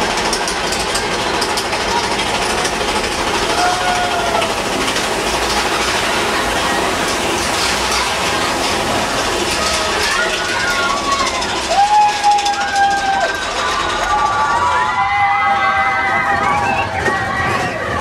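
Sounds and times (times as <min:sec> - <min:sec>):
roller coaster rattling on track: 0:00.0 - 0:18.0.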